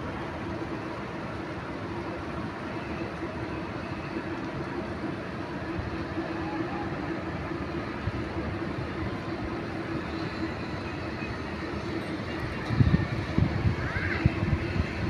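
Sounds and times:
zipline trolley whirring: 3.0s - 15.0s.

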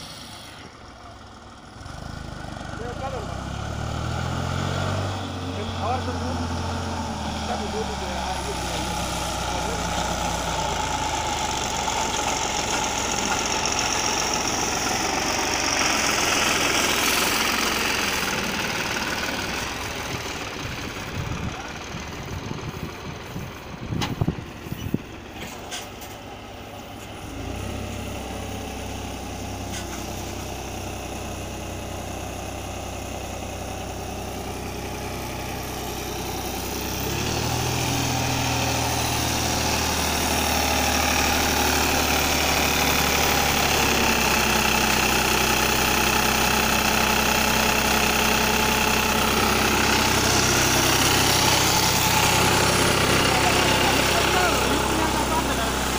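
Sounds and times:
tractor diesel engine running: 0.0s - 55.9s
engine knocks: 5.6s - 26.4s.

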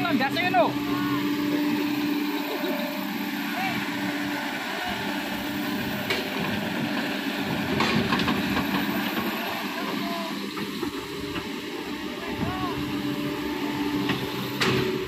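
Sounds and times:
excavator diesel engine running: 0.0s - 15.0s
knocks and clatter: 7.7s - 8.9s.

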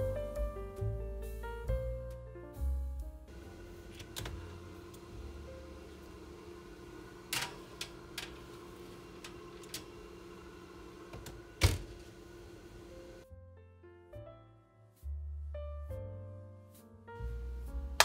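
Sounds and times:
oven door shutting: 3.3s - 13.2s
steady low hum: 3.3s - 13.2s.

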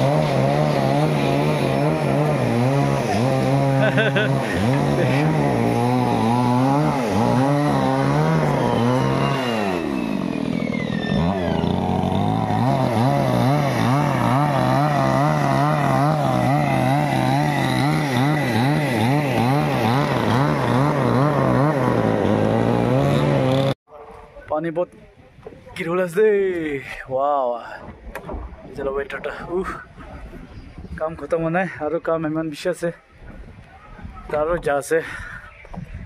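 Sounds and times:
chainsaw cutting log: 0.0s - 23.8s.

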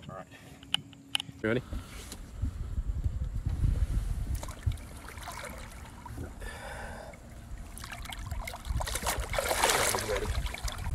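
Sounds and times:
wind rumble on microphone: 1.6s - 6.4s, 7.4s - 10.9s
water splashing against boat: 7.3s - 10.9s.

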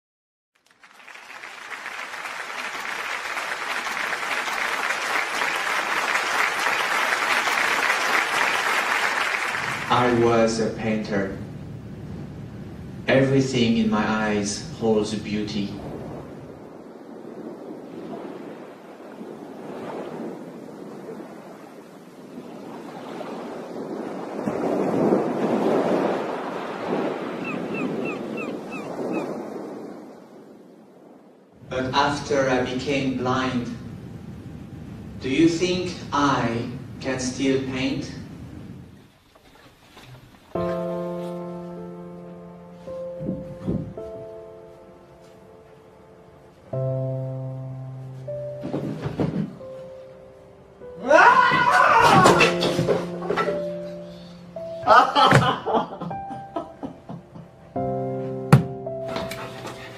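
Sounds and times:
audience applauding: 0.6s - 10.2s
ocean surf washing onto beach: 1.2s - 39.0s.

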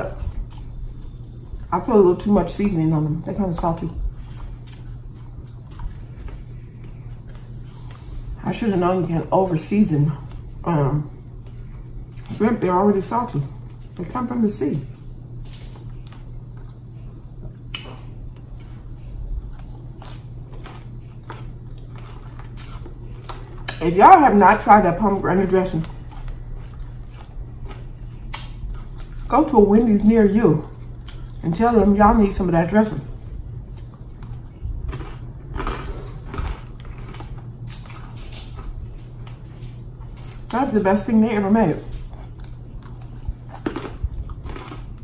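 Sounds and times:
low steady hum: 0.0s - 45.0s
person chewing food: 0.2s - 1.7s, 4.1s - 8.3s, 15.4s - 23.8s, 25.8s - 29.3s, 30.6s - 31.4s, 33.2s - 40.6s, 41.9s - 45.0s.

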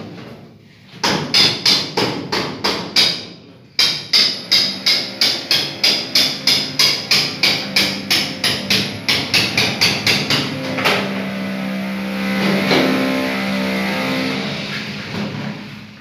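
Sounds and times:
sustained pitched tones: 5.8s - 15.4s
tapping beat: 5.9s - 11.1s.

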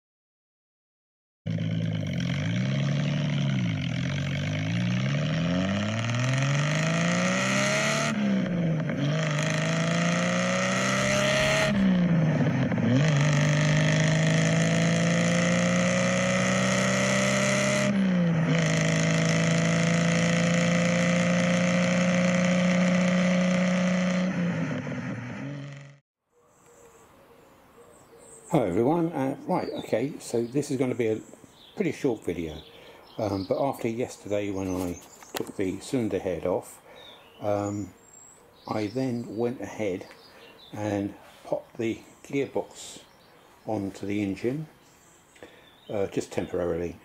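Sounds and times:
car engine revving and accelerating: 1.5s - 26.0s.

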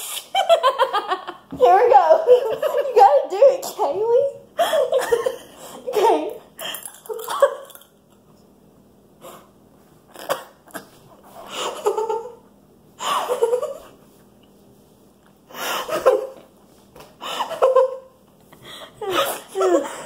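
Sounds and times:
girls laughing: 0.3s - 1.5s, 2.2s - 3.1s, 4.6s - 6.2s.

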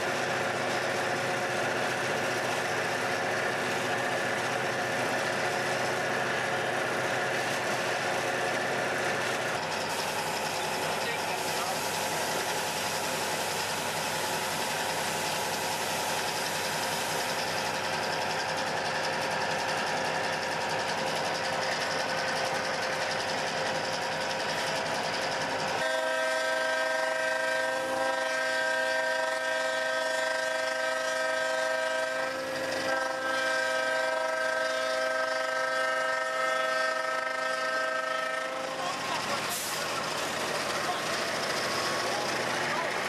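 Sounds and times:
diesel engine running: 0.0s - 43.0s
locomotive air horn blast: 25.8s - 39.8s.

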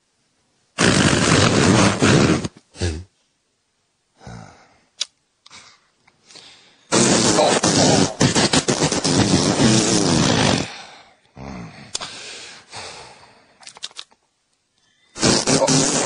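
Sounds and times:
rasping cartoon hippo vocals: 6.9s - 10.7s, 15.2s - 16.0s.

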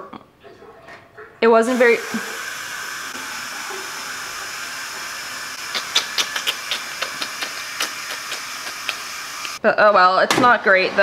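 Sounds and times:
kitchen appliance hissing: 1.6s - 9.6s.

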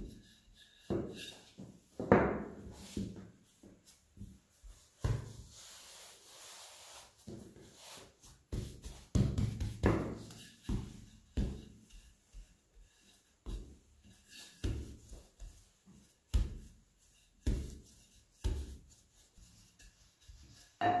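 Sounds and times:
soft rubbing of dough: 0.0s - 20.8s
rolling pin thumping dough: 7.3s - 12.6s, 13.4s - 16.8s, 17.4s - 18.9s.

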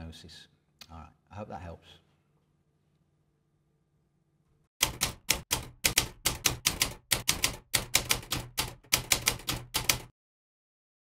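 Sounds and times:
typewriter keys clacking: 4.8s - 10.1s.

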